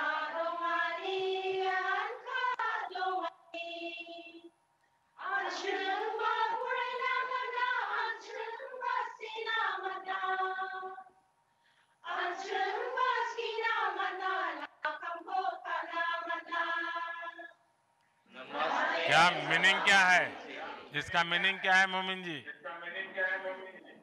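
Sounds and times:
group singing together: 0:00.0 - 0:04.2, 0:05.2 - 0:11.1, 0:12.0 - 0:17.5, 0:18.3 - 0:21.3.

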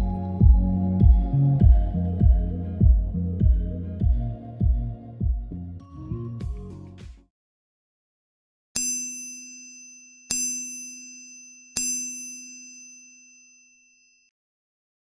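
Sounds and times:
notification bell ding: 0:08.8 - 0:13.3.

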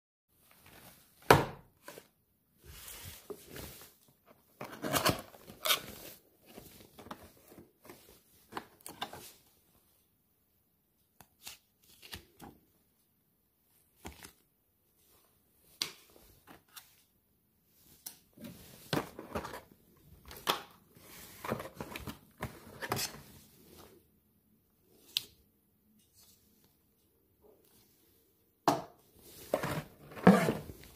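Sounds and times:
cardboard and paper rustling: 0:00.4 - 0:09.4, 0:18.3 - 0:23.9.

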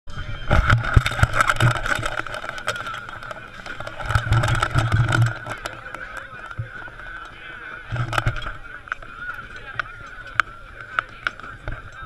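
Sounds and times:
spectator crowd din: 0:00.1 - 0:12.0
camera handling bumps and clicks: 0:00.5 - 0:07.3, 0:07.9 - 0:09.1.

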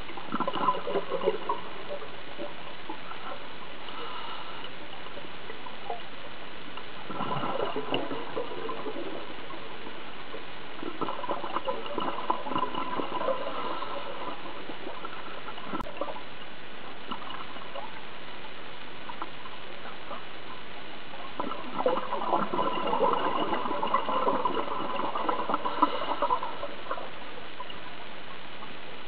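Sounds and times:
steady hiss: 0:00.0 - 0:29.0
underwater exhaust bubbles gurgling: 0:00.0 - 0:29.0.

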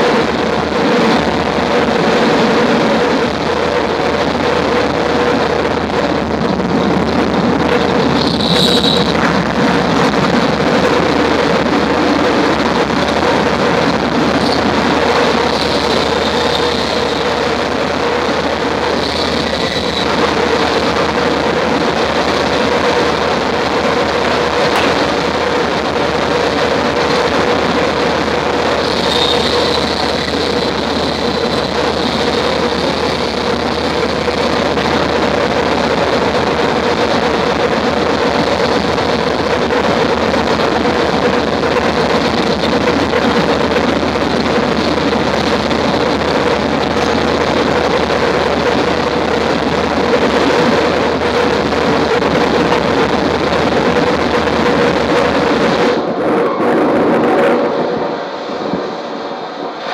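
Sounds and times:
held drone tone: 0:00.0 - 0:36.1
electronic synthesizer noise: 0:00.0 - 0:59.9
high whine: 0:00.0 - 0:59.9.

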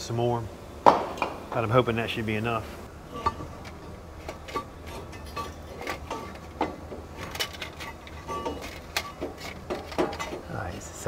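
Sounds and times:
low steady hum: 0:00.0 - 0:11.0
metallic clinks and knocks: 0:03.1 - 0:10.5.

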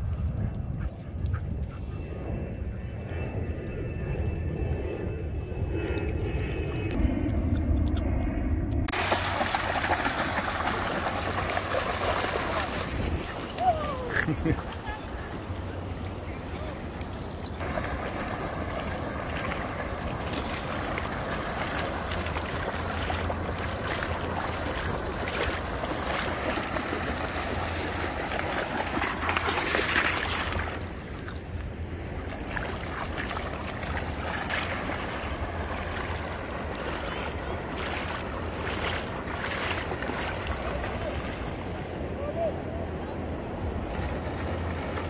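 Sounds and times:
wind: 0:00.0 - 0:45.0
dogs splashing through water: 0:08.9 - 0:16.1, 0:16.9 - 0:41.9.

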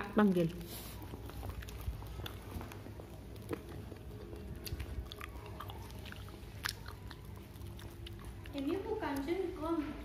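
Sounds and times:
person chewing food: 0:00.0 - 0:09.3.

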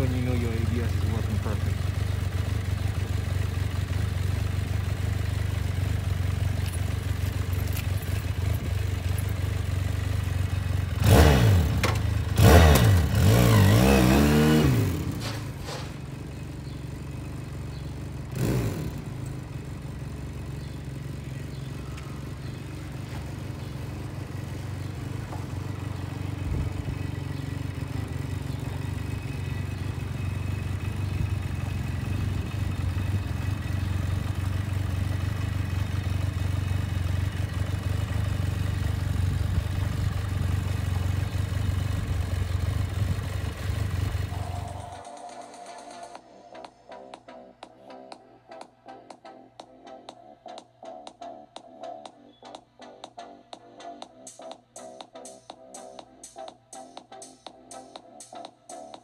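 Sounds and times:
motorcycle engine revving: 0:00.0 - 0:46.2.

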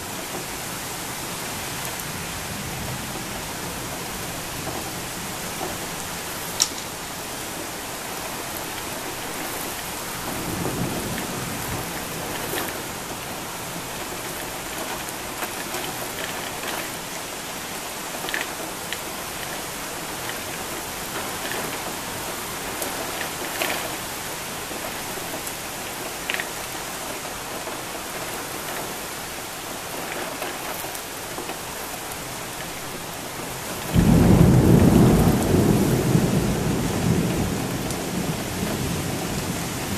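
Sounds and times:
heavy rain pouring: 0:00.0 - 0:39.9
raindrops ticking close by: 0:02.8 - 0:39.9
thunder rumbling and cracking: 0:08.6 - 0:16.7, 0:33.7 - 0:39.9.

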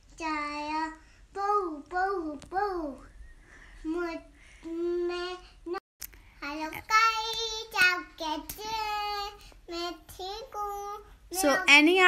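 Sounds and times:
girl singing in a high voice: 0:06.4 - 0:11.7.

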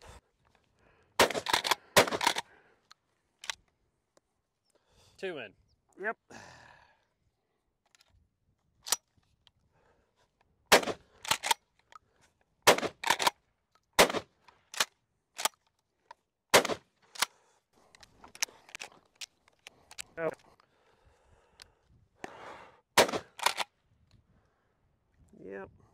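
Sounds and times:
shotgun pump racking: 0:01.2 - 0:02.4, 0:10.8 - 0:12.0, 0:12.7 - 0:13.3, 0:14.7 - 0:15.7, 0:16.6 - 0:17.4, 0:18.0 - 0:20.1, 0:23.0 - 0:23.7
shotgun shots: 0:01.2 - 0:02.4, 0:10.7 - 0:11.5, 0:12.7 - 0:13.3, 0:14.0 - 0:14.3, 0:16.5 - 0:16.8, 0:23.0 - 0:23.6.

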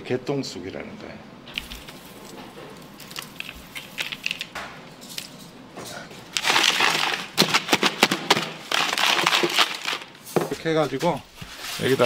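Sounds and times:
dry straw crackling and rustling: 0:01.6 - 0:04.5, 0:06.4 - 0:12.0.

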